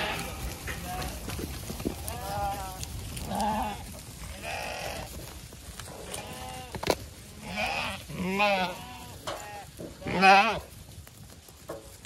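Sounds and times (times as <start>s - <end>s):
sheep bleating: 0.0s - 1.3s, 2.0s - 5.2s, 6.0s - 10.7s.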